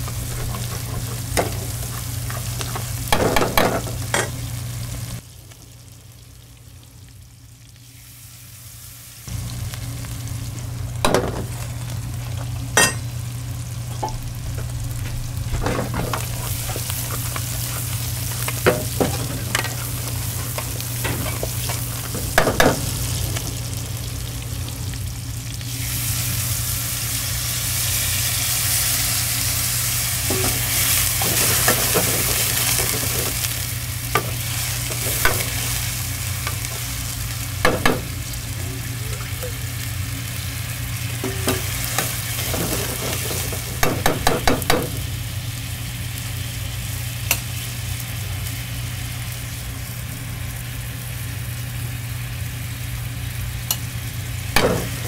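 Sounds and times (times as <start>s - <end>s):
utensil clanking against wok: 0.0s - 4.4s, 12.8s - 13.1s, 15.5s - 23.1s, 30.2s - 33.5s, 34.1s - 35.8s, 37.6s - 38.2s, 41.2s - 45.1s, 54.6s - 55.0s
food sizzling in hot oil: 0.0s - 55.0s
steady low hum: 0.0s - 55.0s.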